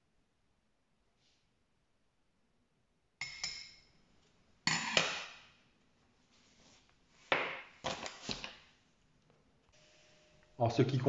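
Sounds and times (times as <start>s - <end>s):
metal spoon clinking on ceramic: 3.2s - 3.9s.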